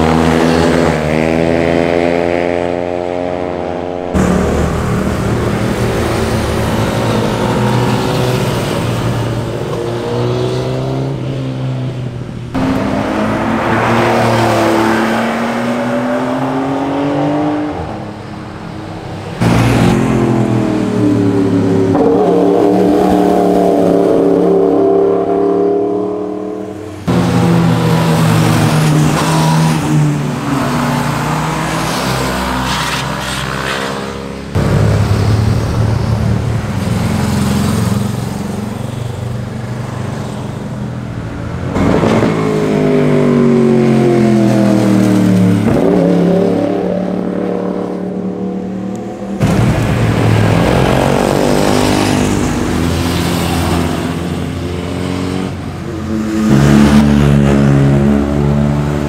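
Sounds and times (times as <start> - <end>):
motorcycles riding past: 33.4 - 40.7, 48.6 - 59.0.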